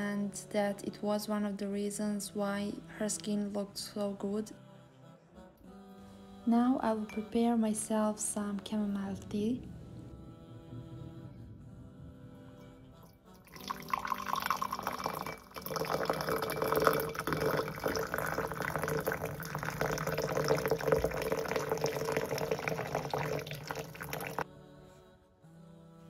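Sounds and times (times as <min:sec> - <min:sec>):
soft background music: 0:00.0 - 0:26.0
water pouring: 0:13.4 - 0:24.4.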